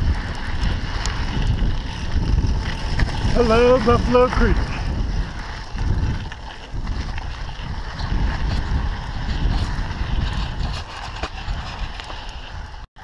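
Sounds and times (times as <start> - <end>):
bike clicks and rattles: 0.0 - 12.8
wind buffeting microphone: 0.0 - 12.9.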